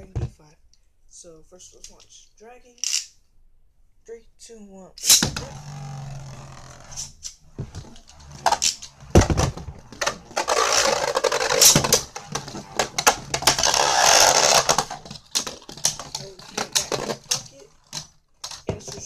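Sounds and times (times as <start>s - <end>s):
spinning top in plastic stadium: 5.0s - 19.0s
rasping noise bursts: 5.2s - 17.9s.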